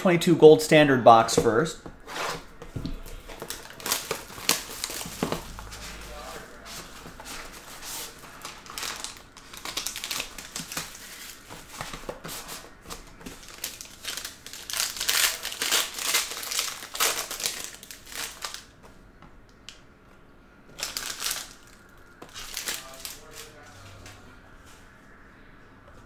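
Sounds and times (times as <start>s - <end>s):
packaging crinkling and rustling: 2.1s - 18.9s, 20.7s - 23.6s.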